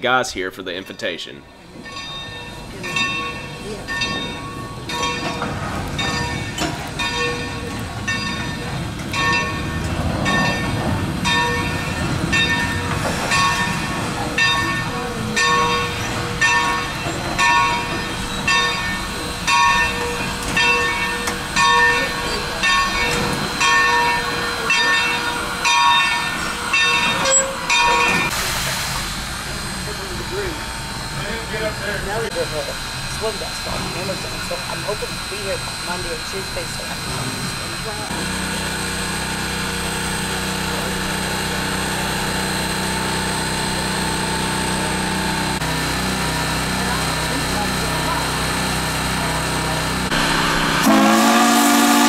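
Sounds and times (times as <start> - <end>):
locomotive bell ringing: 0.5 - 28.4, 29.6 - 52.0
rumble of locomotive running gear: 1.5 - 52.0.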